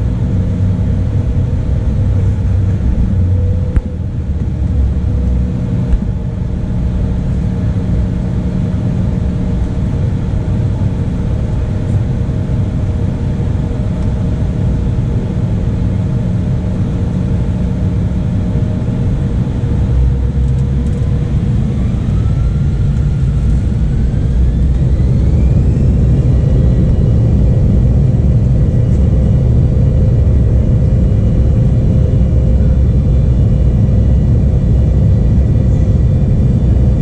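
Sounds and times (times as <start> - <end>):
heavy low rumble: 0.0 - 37.0
rising engine whine: 0.0 - 37.0
jet engines spooling up: 19.0 - 37.0.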